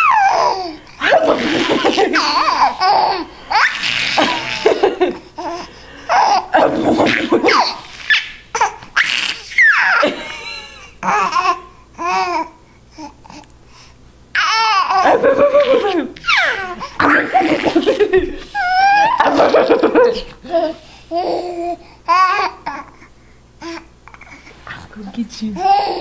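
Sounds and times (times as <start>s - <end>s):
baby laughing: 0.0s - 12.5s, 14.4s - 22.9s, 25.6s - 26.0s.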